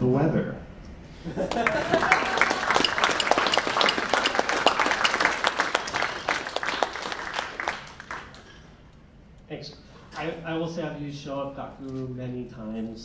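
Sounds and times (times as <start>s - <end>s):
audience applauding: 1.3s - 8.7s.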